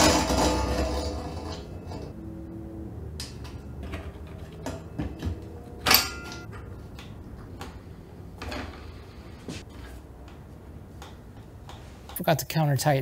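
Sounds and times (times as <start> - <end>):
sharp metallic clink: 5.8 - 6.5.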